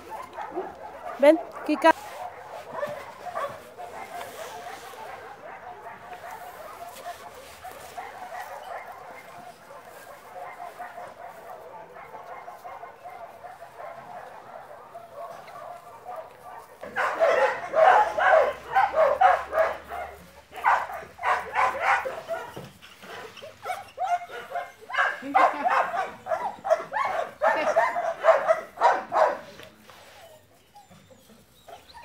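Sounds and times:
dog barking: 0:00.0 - 0:29.7
dog whining: 0:29.9 - 0:32.0.

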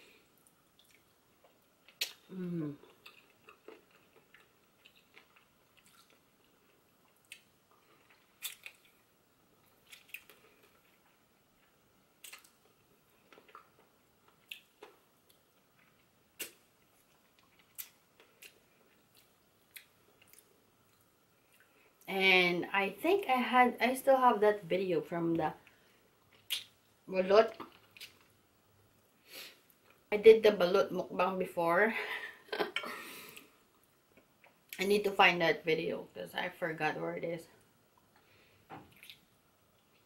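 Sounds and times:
person chewing and sucking: 0:00.8 - 0:09.0, 0:09.6 - 0:21.7, 0:38.9 - 0:39.2.

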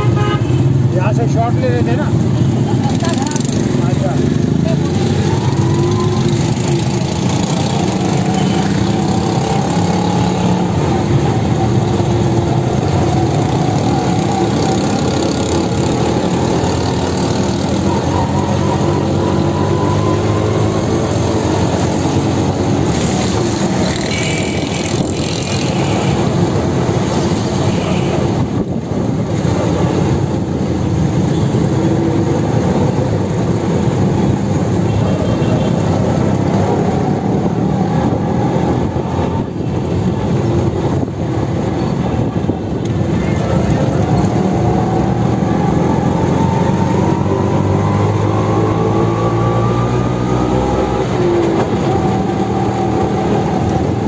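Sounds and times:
small rickshaw engine running: 0:02.2 - 0:26.9.

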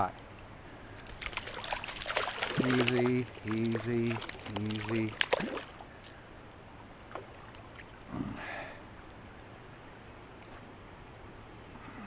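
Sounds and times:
steady light hiss: 0:00.0 - 0:12.0
water sloshing and splashing: 0:00.3 - 0:08.1.

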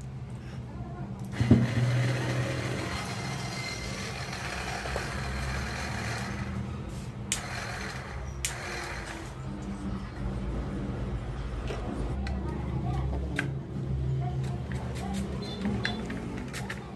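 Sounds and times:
electric motor humming and whirring: 0:01.3 - 0:09.5.

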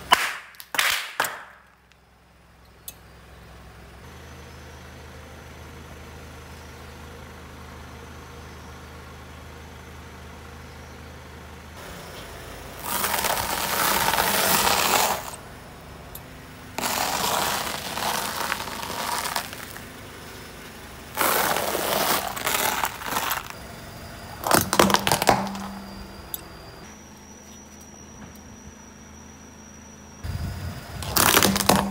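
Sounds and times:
sharp cracks: 0:00.1 - 0:01.8
tyre crunching stiff fibres: 0:11.8 - 0:15.4, 0:16.7 - 0:23.6, 0:24.4 - 0:26.0, 0:31.0 - 0:31.9.

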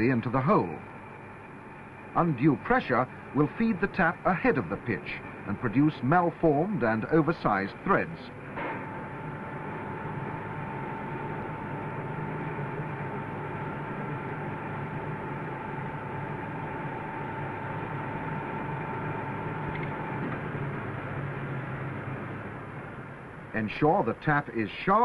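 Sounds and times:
machine spindle hum: 0:00.0 - 0:25.0
thin steady whine: 0:00.0 - 0:25.0.

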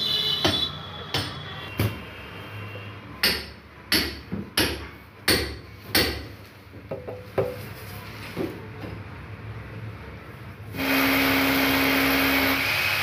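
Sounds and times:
sharp hard knocks: 0:03.2 - 0:06.3.

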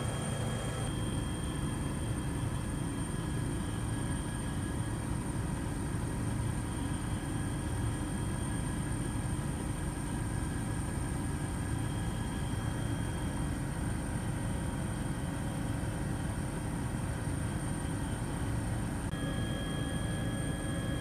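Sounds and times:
faint high whines: 0:00.0 - 0:04.9, 0:19.1 - 0:21.0.

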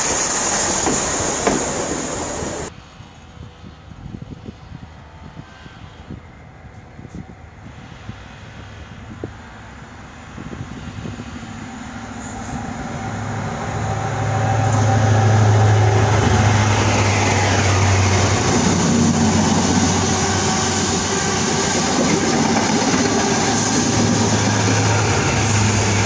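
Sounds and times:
diesel train engine passing: 0:00.0 - 0:05.3, 0:06.2 - 0:26.0
train coaches rumbling on rails: 0:00.0 - 0:26.0.

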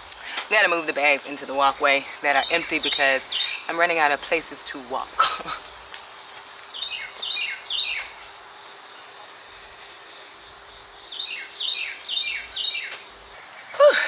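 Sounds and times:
high insect drone: 0:00.0 - 0:14.0.

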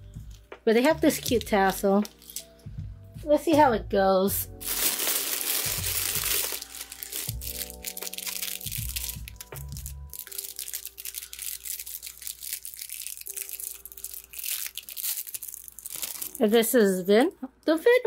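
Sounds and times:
lo-fi background music: 0:00.0 - 0:18.0
plastic bags crinkling: 0:01.3 - 0:02.5, 0:04.5 - 0:16.6.

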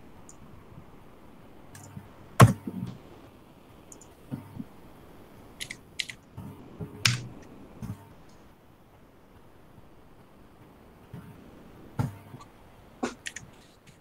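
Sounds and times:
keyboard typing: 0:05.6 - 0:06.2, 0:07.0 - 0:07.4, 0:13.0 - 0:14.0.

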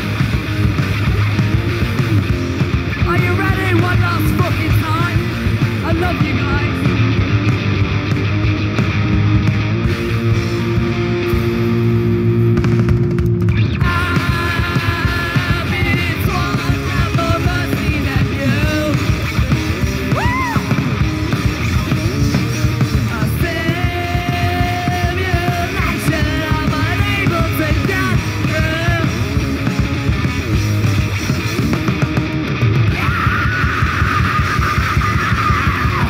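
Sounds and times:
rock band playing live: 0:00.0 - 0:36.0
singer yelling vocals: 0:02.9 - 0:07.1, 0:13.7 - 0:19.2, 0:20.0 - 0:21.0, 0:22.4 - 0:29.4, 0:32.9 - 0:36.0.

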